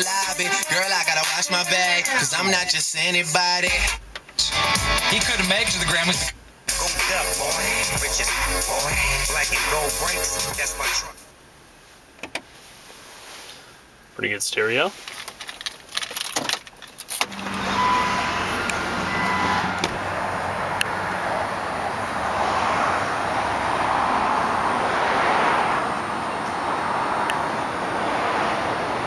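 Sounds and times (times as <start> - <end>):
rushing outdoor background noise: 9.7 - 29.0
sharp clicks and knocks: 12.2 - 12.5
short beeps: 17.3 - 19.8.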